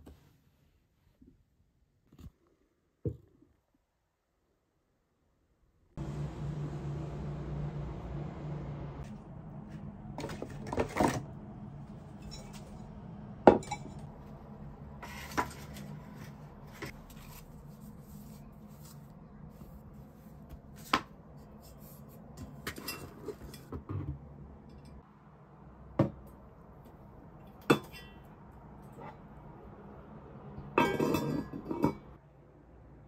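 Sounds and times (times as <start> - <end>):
low steady hum: 6.0 - 33.0
pot and lid clinking: 30.8 - 32.1.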